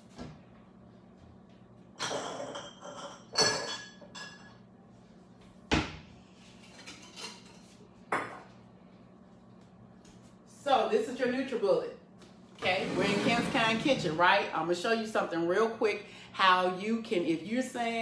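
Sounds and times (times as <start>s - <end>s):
kitchen items clattering: 2.0s - 4.6s, 6.5s - 8.5s, 12.6s - 14.2s.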